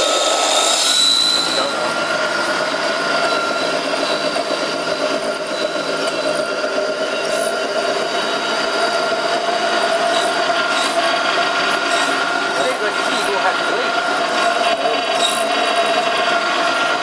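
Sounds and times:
high motor tones: 0:00.0 - 0:17.0
mill machine running: 0:00.0 - 0:17.0.

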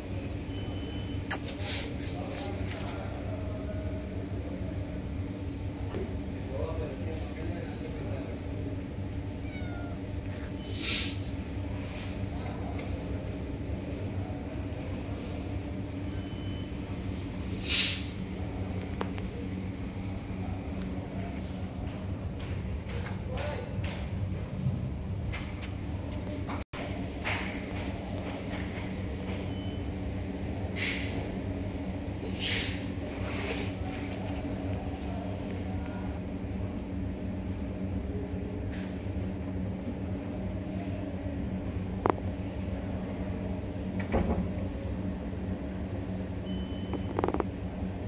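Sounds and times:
low mechanical hum: 0:00.0 - 0:48.0
short hisses: 0:01.3 - 0:02.6, 0:10.6 - 0:11.3, 0:17.5 - 0:18.2, 0:32.2 - 0:32.8.

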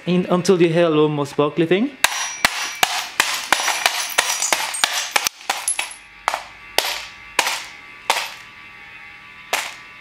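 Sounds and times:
hammer smashing metal alarm clock: 0:02.0 - 0:06.0.

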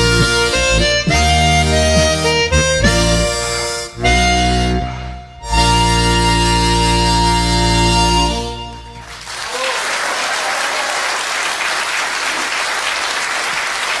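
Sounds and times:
audience applauding: 0:09.0 - 0:14.0.

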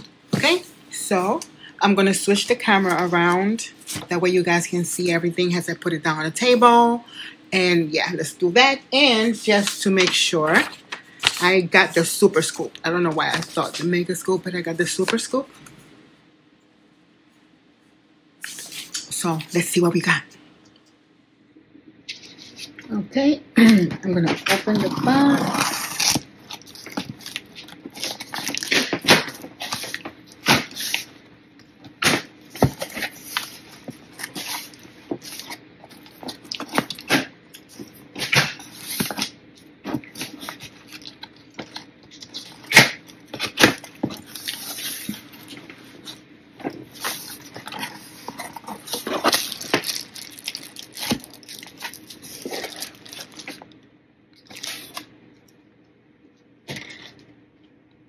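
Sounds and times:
scissors cutting packing tape: 0:25.1 - 0:31.1.

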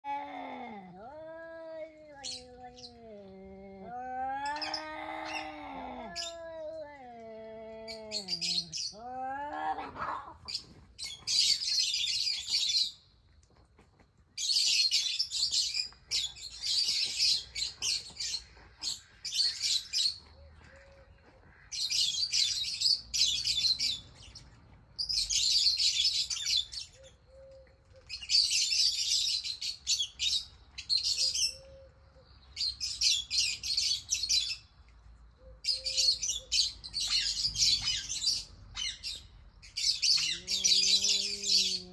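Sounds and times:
low animal cry: 0:00.0 - 0:10.5, 0:40.0 - 0:41.9
songbird chattering song: 0:14.4 - 0:41.9.

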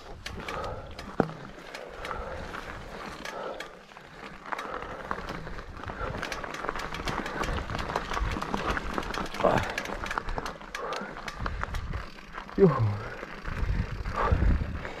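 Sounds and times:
bike clicks and rattles: 0:00.0 - 0:15.0
tyres rolling over loose stones: 0:04.0 - 0:13.9.

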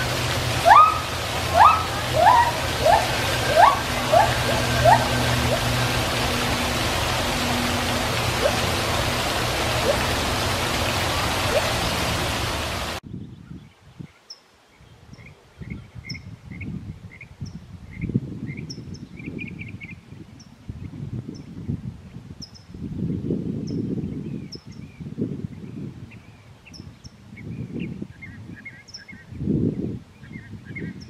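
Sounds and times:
loud rushing noise: 0:00.0 - 0:13.0
gibbon whoops: 0:00.6 - 0:05.7.

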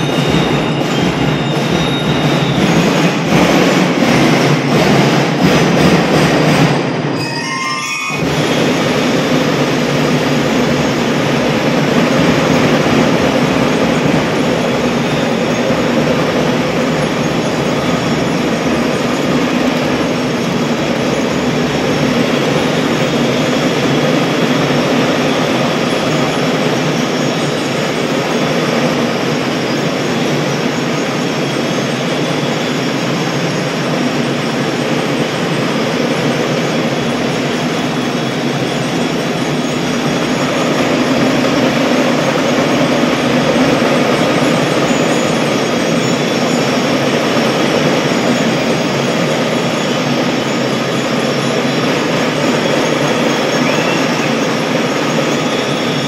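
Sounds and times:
mallet glockenspiels: 0:00.0 - 0:03.5, 0:06.5 - 0:56.0
drum and bugle corps playing: 0:00.0 - 0:06.8
marching drums: 0:00.0 - 0:07.1.

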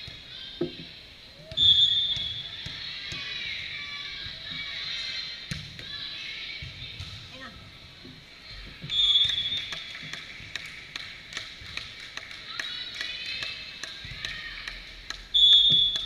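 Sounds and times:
referee's whistle blasts: 0:01.5 - 0:02.6, 0:08.9 - 0:09.8, 0:15.3 - 0:16.0
ball taps and knocks: 0:08.8 - 0:16.0.

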